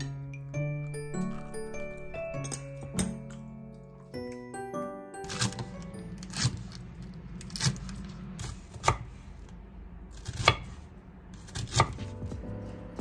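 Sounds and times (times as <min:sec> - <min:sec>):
low steady hum: 0:05.6 - 0:13.0.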